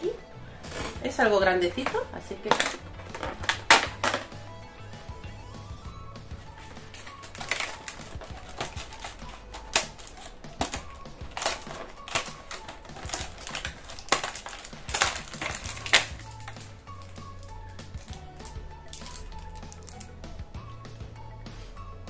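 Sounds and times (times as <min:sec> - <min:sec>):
packaging crinkling and tearing: 0:06.8 - 0:20.2.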